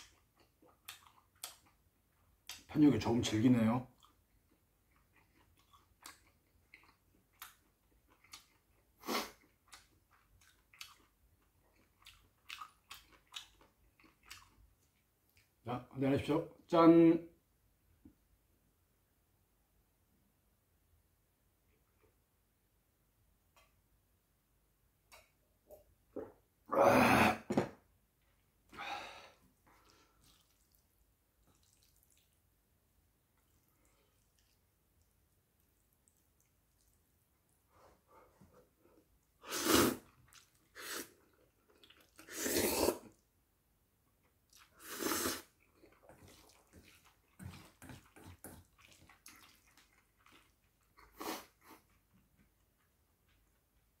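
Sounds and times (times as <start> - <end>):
chewing with wet mouth smacks: 0.0 - 2.7, 4.0 - 15.6, 29.6 - 32.5, 33.3 - 37.1, 40.0 - 42.4, 44.2 - 44.8, 45.4 - 54.0
man exhaling breathily: 28.8 - 29.4.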